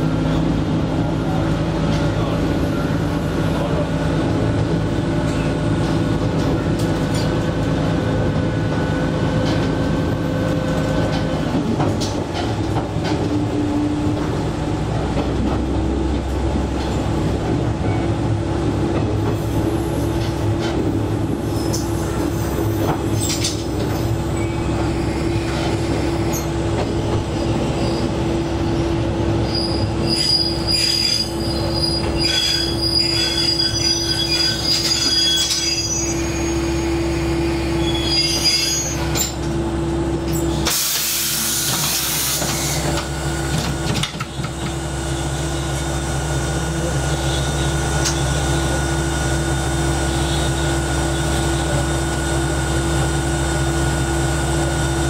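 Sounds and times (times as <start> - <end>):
diesel railcar running: 0.0 - 55.0
wheel and brake squeal: 29.4 - 39.4.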